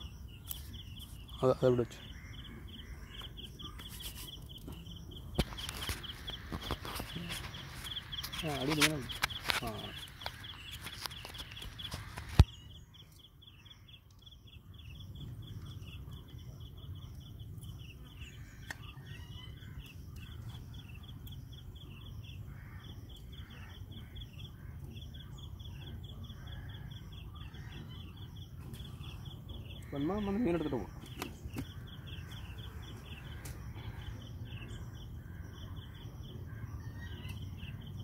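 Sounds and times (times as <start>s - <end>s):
high chirping: 0.0s - 13.4s.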